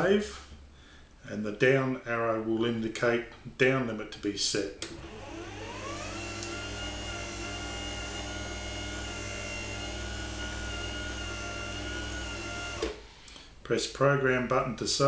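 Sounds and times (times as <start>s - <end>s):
door opener motor whine: 4.9s - 13.1s.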